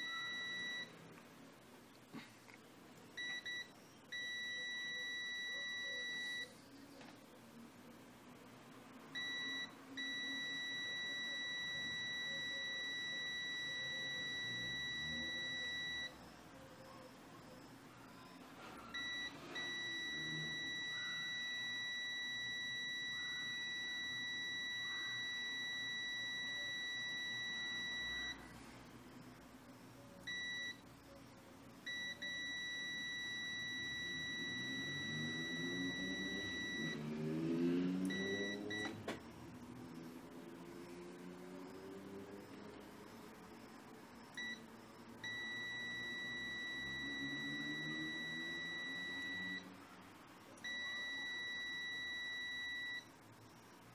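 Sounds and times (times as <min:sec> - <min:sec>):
high-pitched continuity beeper tone: 0:31.9 - 0:37.0, 0:45.3 - 0:49.7.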